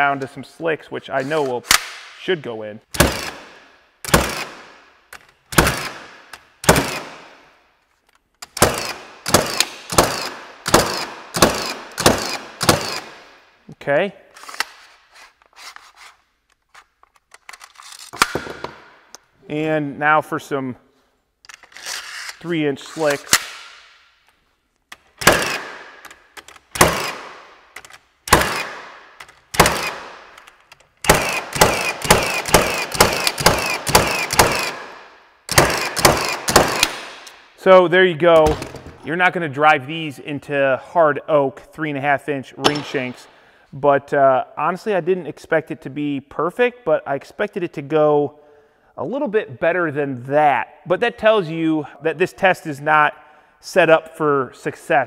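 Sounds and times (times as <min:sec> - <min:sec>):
nail gun shots: 0:01.6 - 0:02.2, 0:02.9 - 0:04.8, 0:05.5 - 0:07.4, 0:08.4 - 0:13.3, 0:18.2 - 0:19.0, 0:23.3 - 0:23.9, 0:25.2 - 0:37.4, 0:42.6 - 0:43.3.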